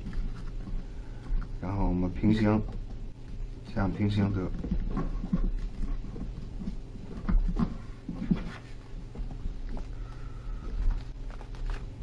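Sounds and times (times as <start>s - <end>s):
steady low hum: 0.0s - 12.0s
paper rustling and crinkling: 3.8s - 12.0s.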